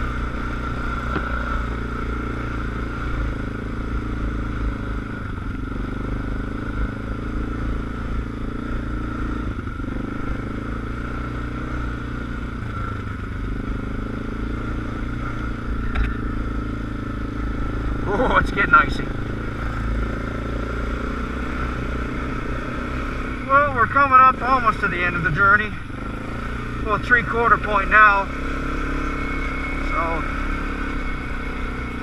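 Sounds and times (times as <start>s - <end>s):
atv engine running: 0.0s - 32.0s.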